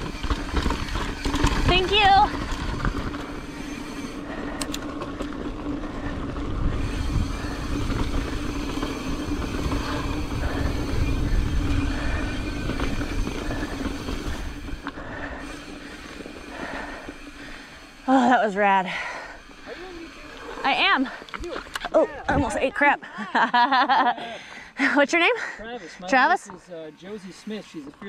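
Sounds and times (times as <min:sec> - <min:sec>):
tyres rolling over rock: 0:00.0 - 0:17.4
steady whir: 0:00.0 - 0:22.8
sharp clicks: 0:04.6 - 0:05.3
wind rushing over microphone: 0:05.5 - 0:16.6.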